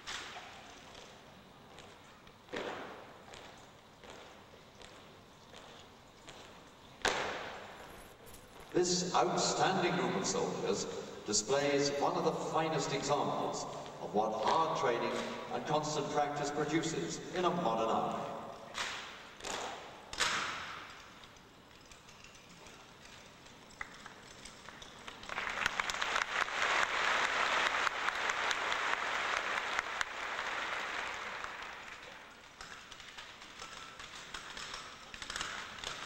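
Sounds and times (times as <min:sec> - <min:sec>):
rifles cracking and slapping: 0:00.0 - 0:08.8, 0:18.2 - 0:26.0, 0:31.1 - 0:36.0
audience applause: 0:25.1 - 0:32.3
rifles clicking: 0:31.9 - 0:36.0.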